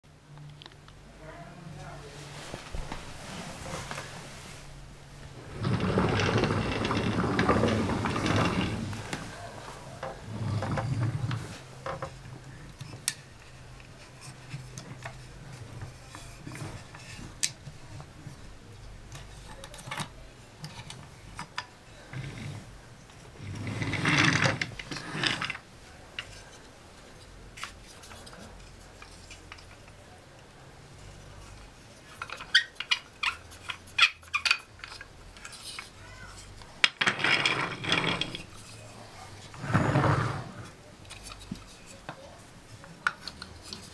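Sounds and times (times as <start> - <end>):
wooden wheels rolling on floor: 5.2 - 12.5, 22.0 - 25.6, 36.8 - 40.8
wooden toy parts clacking: 31.5 - 38.9.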